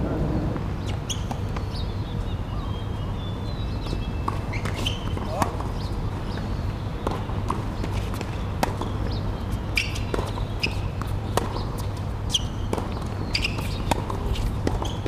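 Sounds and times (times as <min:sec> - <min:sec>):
shoe squeaks: 0:00.8 - 0:01.7, 0:03.9 - 0:05.9, 0:09.5 - 0:11.2, 0:11.8 - 0:15.0
tennis ball bounces: 0:03.8 - 0:15.0.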